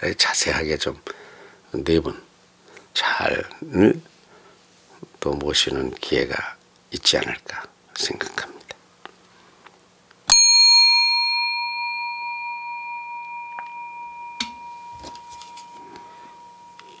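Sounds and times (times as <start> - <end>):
small bell ringing: 10.3 - 17.0.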